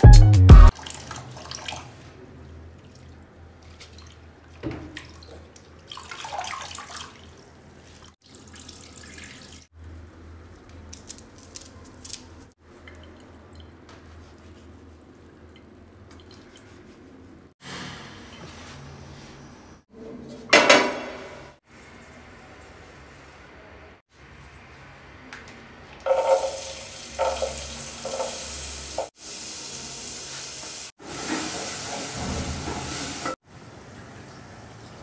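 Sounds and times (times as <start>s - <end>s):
water splashing in a metal sink: 0.7s - 9.8s, 12.7s - 17.0s, 26.0s - 35.0s.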